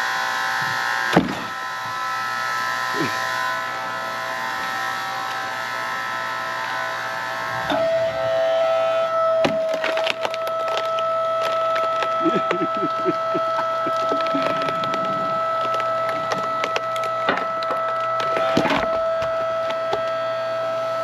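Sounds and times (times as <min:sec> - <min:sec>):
log splitter whine: 0:00.0 - 0:21.0
log cracking and splintering: 0:09.4 - 0:20.1.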